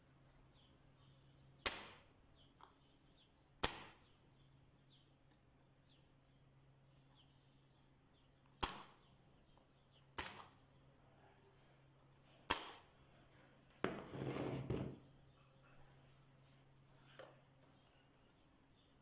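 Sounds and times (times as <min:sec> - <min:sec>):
staple gun firing: 0:12.5 - 0:12.8.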